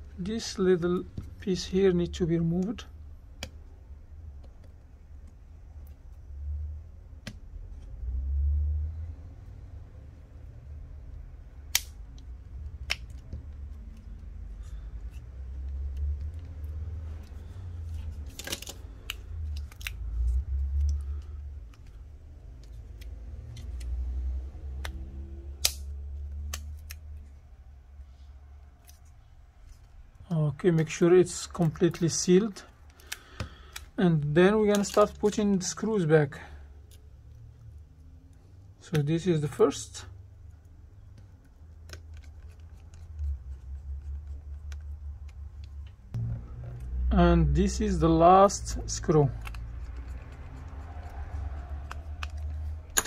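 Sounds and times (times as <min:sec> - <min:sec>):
steady low hum: 0:39.6 - 0:53.0
low handling rumble: 0:45.2 - 0:49.6.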